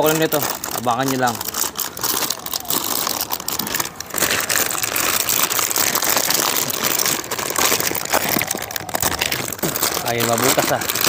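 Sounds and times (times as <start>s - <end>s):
plastic packaging crinkling: 0.0s - 11.0s.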